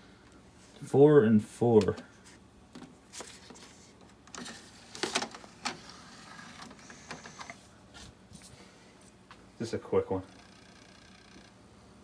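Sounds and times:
disc tray motor whir: 4.4s - 7.6s, 10.2s - 11.6s
disc changer clicks and clunks: 6.4s - 7.6s.

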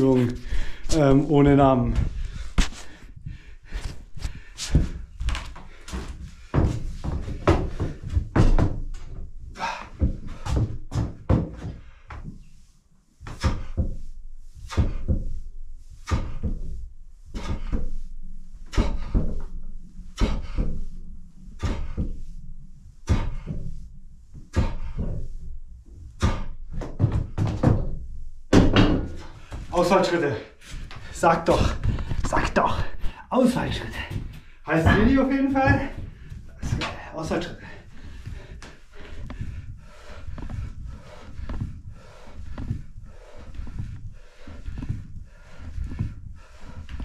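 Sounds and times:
barbell thuds and knocks: 26.3s - 29.4s.

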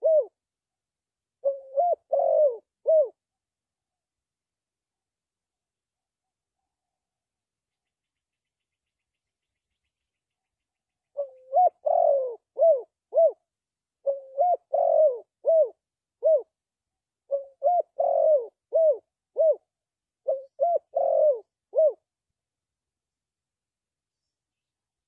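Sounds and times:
dove cooing: 0.0s - 0.4s, 1.4s - 3.2s, 11.1s - 13.4s, 14.0s - 16.5s, 17.3s - 22.0s.

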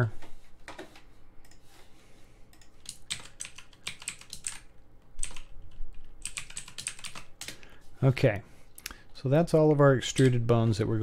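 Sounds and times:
typing on computer keyboard: 2.5s - 7.6s.

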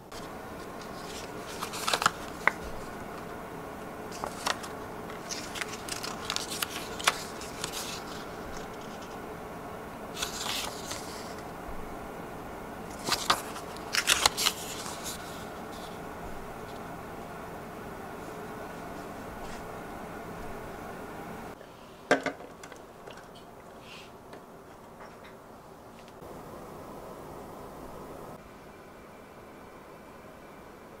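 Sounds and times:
paper rustling and crackling: 0.1s - 3.4s, 4.0s - 9.2s, 10.1s - 11.5s, 12.9s - 16.9s.

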